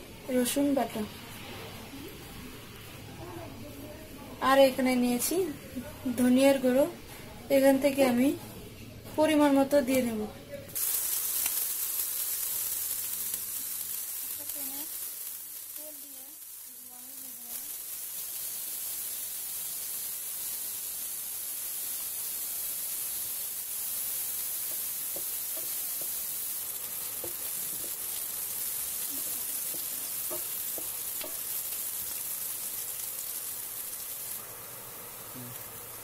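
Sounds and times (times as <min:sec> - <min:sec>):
vegetables sizzling in hot oil: 0:10.7 - 0:36.0.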